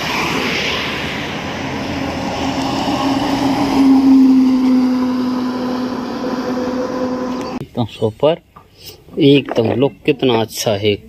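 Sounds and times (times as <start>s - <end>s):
bus driving past: 0.0s - 7.6s.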